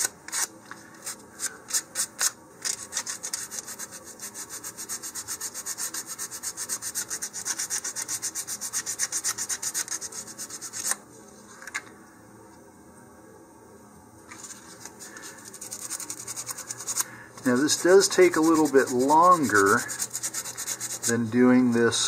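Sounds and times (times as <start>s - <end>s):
sandpaper rubbing on wood: 2.7s - 10.9s, 15.4s - 21.2s.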